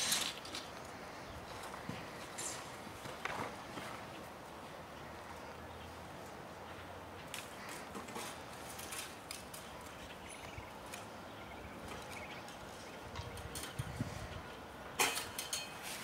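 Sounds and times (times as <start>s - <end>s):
shovels and rakes scraping soil: 0.0s - 1.0s, 2.2s - 2.8s, 15.0s - 16.0s.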